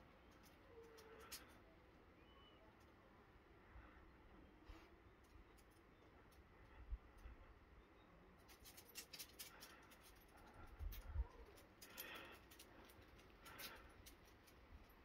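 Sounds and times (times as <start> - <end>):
faint scratching and clicking: 0.0 - 1.8, 8.3 - 15.0.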